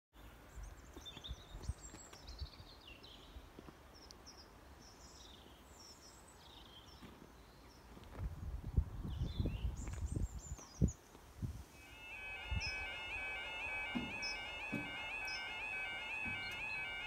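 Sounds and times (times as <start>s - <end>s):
small birds chirping: 11.9s - 17.0s.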